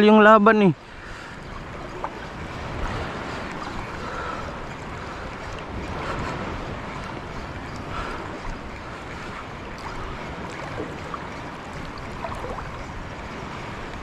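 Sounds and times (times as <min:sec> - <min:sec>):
rushing water: 0:00.0 - 0:14.0
small splashes: 0:02.8 - 0:12.9.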